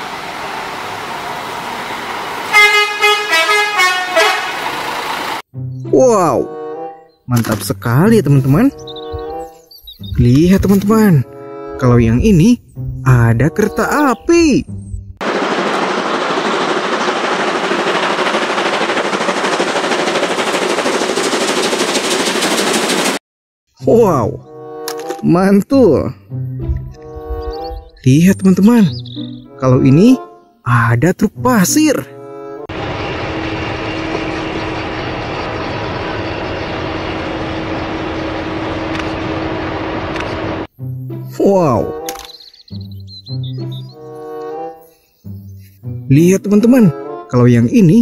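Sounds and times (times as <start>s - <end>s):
steady engine hum: 0.0s - 5.5s, 14.7s - 23.2s, 32.7s - 41.3s
steam locomotive exhaust beats: 15.2s - 23.2s, 32.7s - 40.7s.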